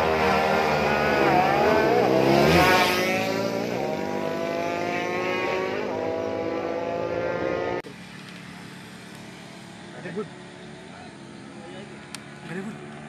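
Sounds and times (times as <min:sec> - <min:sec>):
motorcycle engines revving hard: 0:00.0 - 0:08.0.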